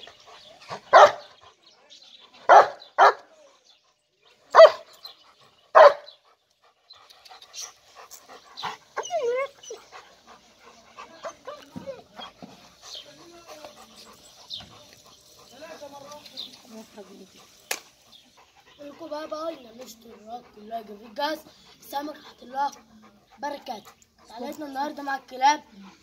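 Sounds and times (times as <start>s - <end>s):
dog barking: 0.9s - 1.3s, 2.5s - 3.2s, 4.5s - 4.9s, 5.8s - 6.1s.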